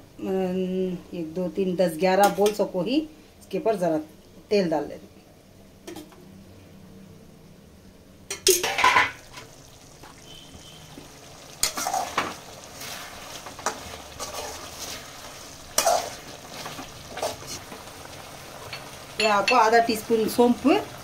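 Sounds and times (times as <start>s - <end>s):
faint sizzle of frying: 8.2s - 21.0s
metal spatula scraping a pan: 8.4s - 9.3s, 11.6s - 17.7s.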